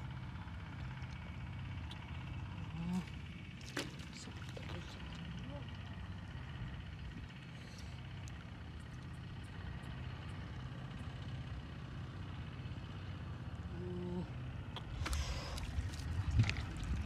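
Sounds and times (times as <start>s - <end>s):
steady low hum: 0.0s - 17.0s
hands squelching in wet mud: 3.0s - 5.4s, 14.8s - 17.0s
splashing: 3.5s - 5.4s, 14.8s - 17.0s.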